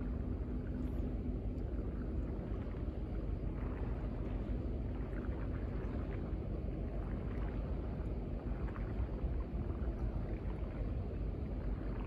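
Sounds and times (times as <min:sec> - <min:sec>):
water lapping against seawall: 0:00.0 - 0:12.0.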